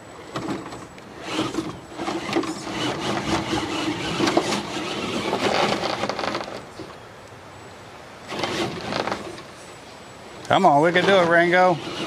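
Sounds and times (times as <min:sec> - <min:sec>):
truck knocking and scraping plastic: 0:00.3 - 0:06.9, 0:08.3 - 0:09.5, 0:11.0 - 0:12.0
toy truck electric motor hum: 0:01.2 - 0:06.6, 0:08.3 - 0:09.4, 0:11.0 - 0:12.0.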